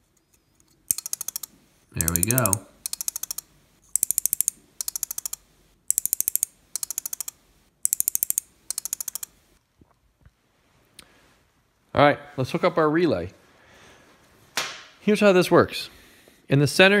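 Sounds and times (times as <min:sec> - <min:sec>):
relays clicking in rapid runs: 0:02.0 - 0:03.4.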